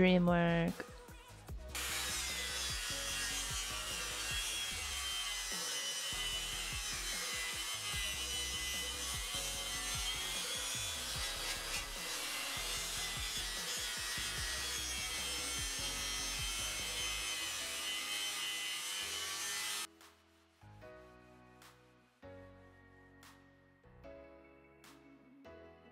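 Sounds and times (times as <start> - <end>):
background music: 0.0 - 25.9.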